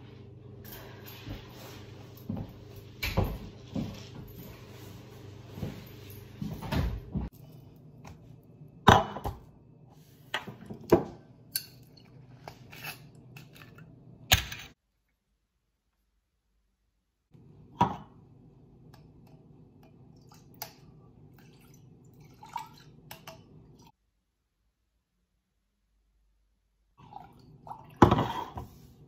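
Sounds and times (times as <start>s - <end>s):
low room hum: 0.0s - 29.0s
soft footsteps: 1.1s - 7.3s.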